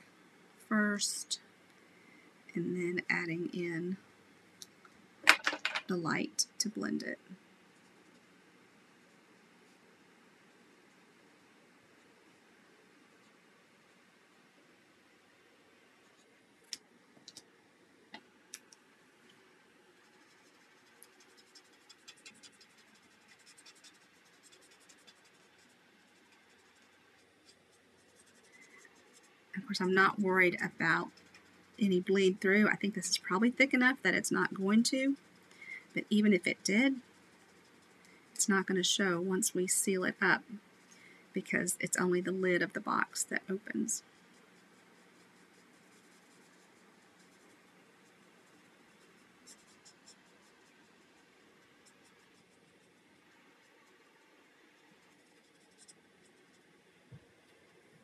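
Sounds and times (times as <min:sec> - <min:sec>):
marker scratching on cardstock: 0:20.1 - 0:38.0, 0:44.2 - 0:51.2, 0:54.9 - 0:56.7.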